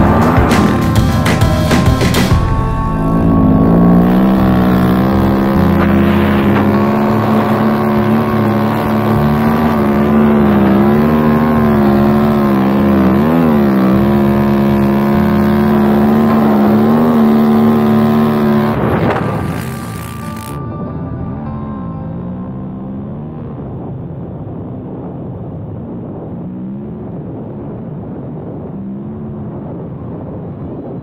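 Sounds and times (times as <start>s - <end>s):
dirt bike engine revving: 0.0s - 20.8s.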